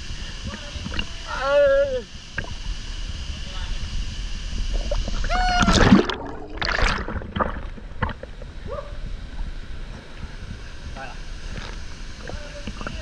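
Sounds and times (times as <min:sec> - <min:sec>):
person yelling: 0:05.3 - 0:05.9
person splashing into pool: 0:05.3 - 0:08.2.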